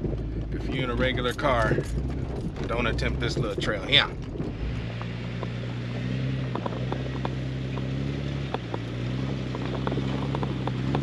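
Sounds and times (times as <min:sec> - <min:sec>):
car engine running low: 0:00.0 - 0:11.0
rocks clicking under tyres: 0:00.0 - 0:11.0.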